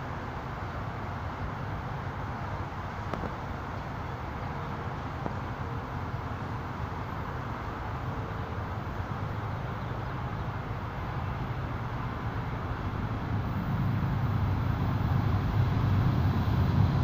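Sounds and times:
distant vehicles rumble: 0.0s - 17.0s
faint clicks: 3.0s - 3.4s.

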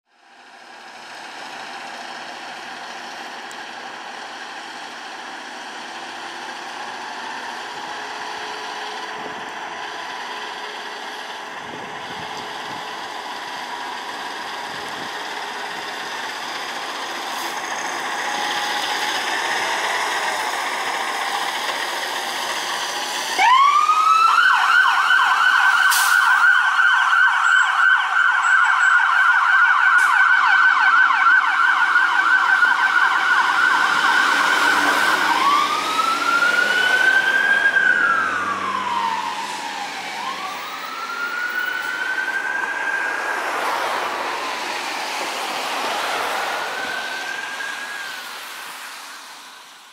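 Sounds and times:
diesel truck engine running: 0.2s - 23.9s, 31.8s - 46.8s
siren yelping: 23.3s - 44.9s, 45.6s - 48.5s.

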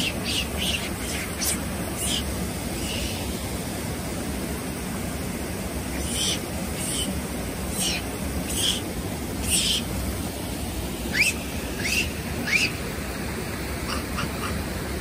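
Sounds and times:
high-pitched animal calls: 0.0s - 3.3s, 5.9s - 9.9s, 11.1s - 12.8s
river water rushing: 0.0s - 15.0s.

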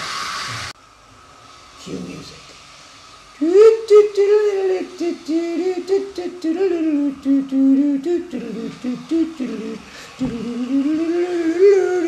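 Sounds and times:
person humming a tune: 3.4s - 12.0s.

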